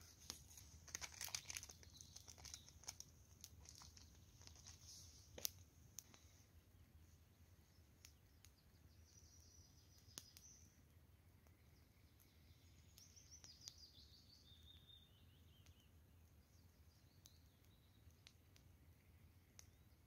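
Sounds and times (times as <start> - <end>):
faint songbirds calling: 0.0 - 20.0
faint clicks: 5.4 - 6.3, 8.0 - 8.6, 19.4 - 19.8.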